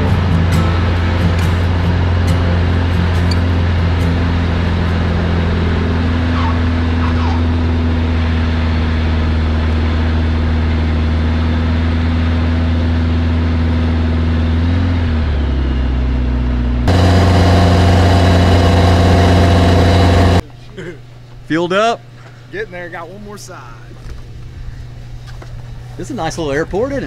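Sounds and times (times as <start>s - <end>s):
different engine hum: 0.0s - 21.4s
light aircraft engine and propeller drone: 0.0s - 21.4s, 23.2s - 27.0s.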